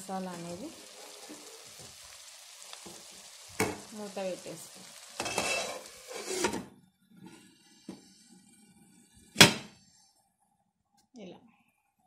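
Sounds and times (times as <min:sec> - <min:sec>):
spatula stirring sizzling curry: 0:00.1 - 0:06.6.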